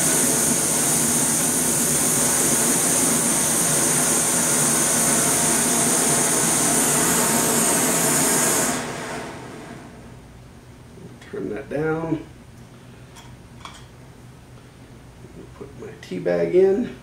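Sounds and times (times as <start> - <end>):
camping stove hissing: 0.0 - 10.1.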